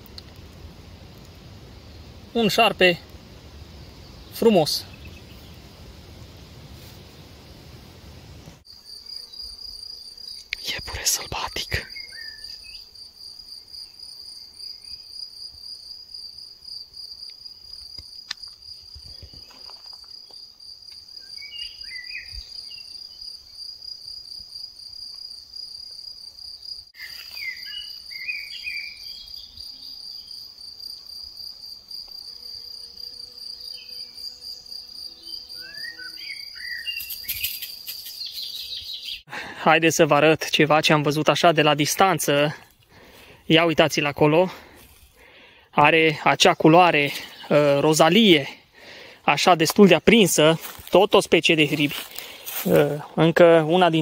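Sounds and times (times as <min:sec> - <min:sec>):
insects chirring: 0:00.0 - 0:54.0
bird chirps: 0:03.8 - 0:05.7, 0:11.4 - 0:12.9, 0:21.2 - 0:23.2, 0:27.0 - 0:29.6, 0:35.2 - 0:39.3.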